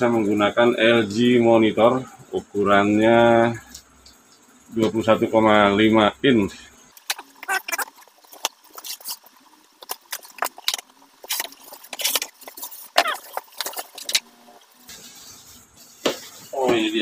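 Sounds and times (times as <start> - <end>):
cardboard and styrofoam handled: 14.9 - 17.0.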